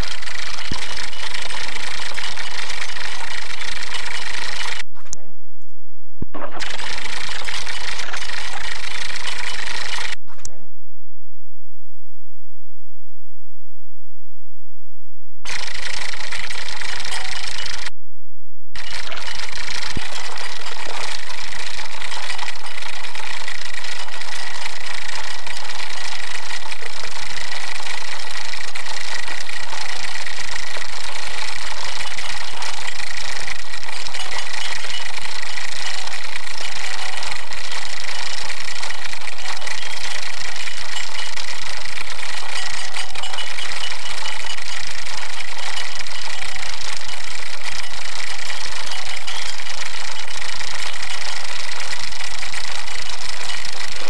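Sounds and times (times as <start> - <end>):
pedestal fan running: 15.5 - 17.9, 18.8 - 54.0.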